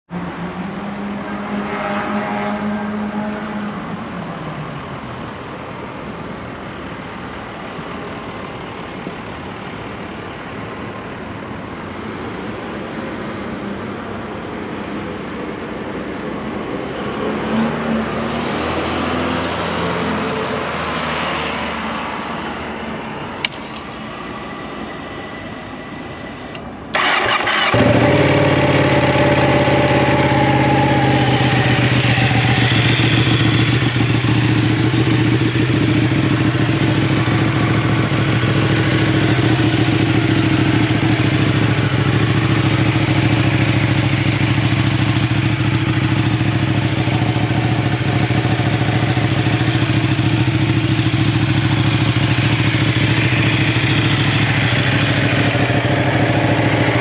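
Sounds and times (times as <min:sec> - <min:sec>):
street traffic noise: 0:00.1 - 0:57.0
motorcycle engine starting and idling: 0:23.4 - 0:57.0.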